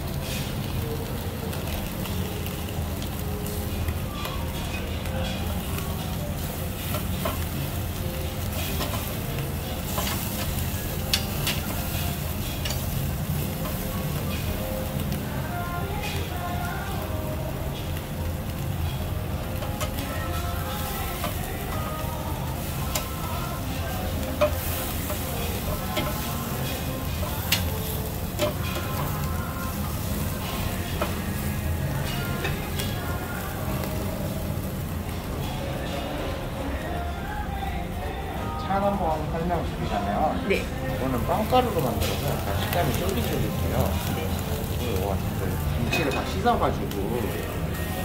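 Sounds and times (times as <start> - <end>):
meat sizzling on grill: 0.0 - 48.0
metal tongs clicking on grate: 4.5 - 7.6, 8.4 - 15.1, 19.5 - 20.1, 22.6 - 33.0.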